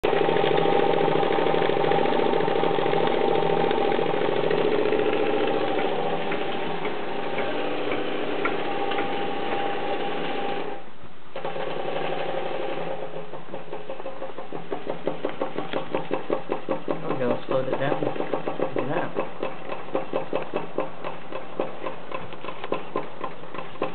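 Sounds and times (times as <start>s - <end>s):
model steam engine clattering: 13.2s - 23.9s.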